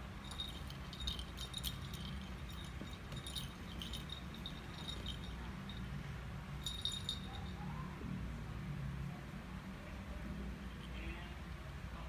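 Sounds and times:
low background rumble: 0.0 - 6.0
cat collar bell jingling: 0.0 - 7.7.

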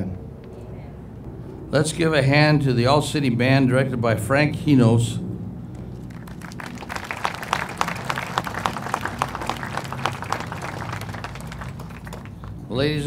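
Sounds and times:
audience applauding: 5.7 - 12.7.

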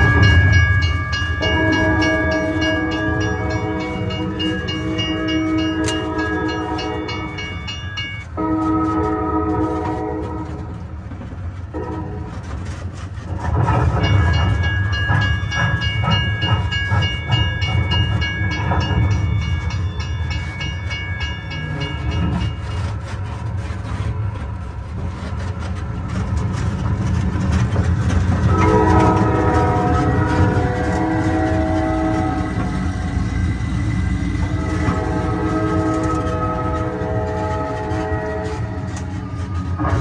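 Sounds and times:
rhythmic clickety-clack train chugging: 0.0 - 40.0
small train engine running: 0.0 - 40.0
train whistle: 1.4 - 7.4, 8.4 - 10.8, 11.7 - 12.8, 28.4 - 40.0.

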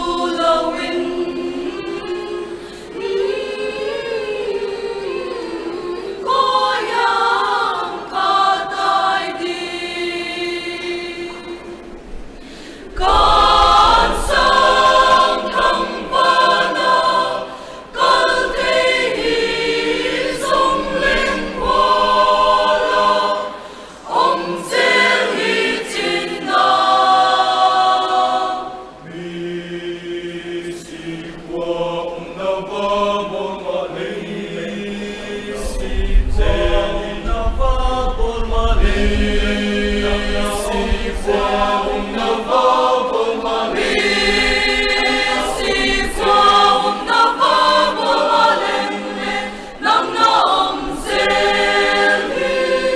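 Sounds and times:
mixed choir singing in harmony: 0.0 - 52.9.

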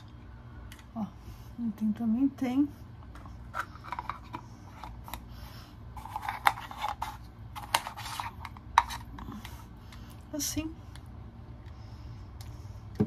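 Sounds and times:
plastic lid clicking and scraping: 6.0 - 9.5.

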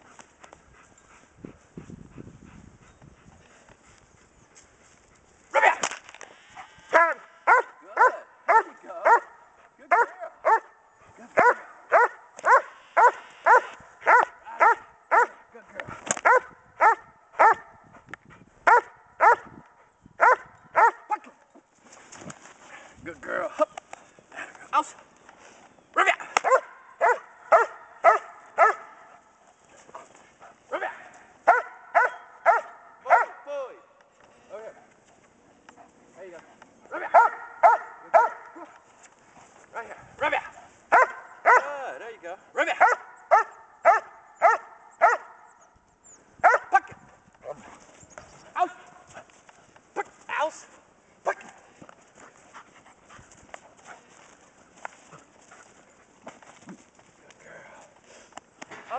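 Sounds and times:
footsteps on dry grass and dirt: 0.0 - 7.0, 46.9 - 58.8
dog barking sharply: 7.0 - 10.7, 11.4 - 15.4, 16.2 - 17.7, 18.7 - 19.5, 26.4 - 28.9, 31.5 - 33.4, 37.1 - 38.7, 40.9 - 41.7, 42.8 - 45.4, 46.4 - 46.8.

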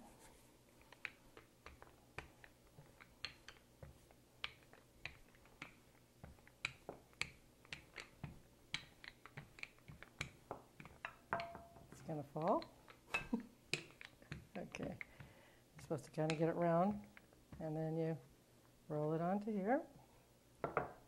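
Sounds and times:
rolling pin clicking and tapping: 0.8 - 17.6.

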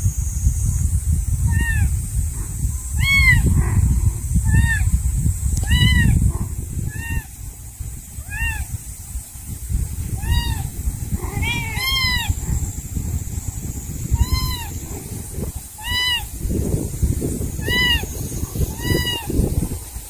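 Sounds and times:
low rumble: 0.0 - 18.9
kitten mewing: 1.5 - 1.9, 3.0 - 3.6, 4.4 - 4.9, 5.6 - 7.3, 8.2 - 8.7, 10.1 - 12.4, 14.1 - 15.1, 15.8 - 16.3, 17.6 - 18.1, 18.7 - 19.3.

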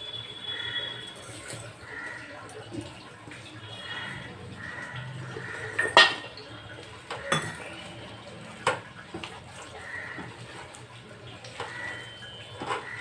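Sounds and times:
hand mixing food in a bowl: 0.4 - 13.0
metallic clinks against a bowl: 7.3 - 7.8.

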